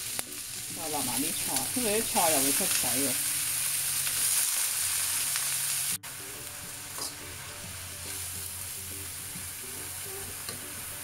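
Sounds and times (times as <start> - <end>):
vegetables sizzling in oil: 0.0 - 11.0
metal spatula scraping wok: 6.8 - 9.2.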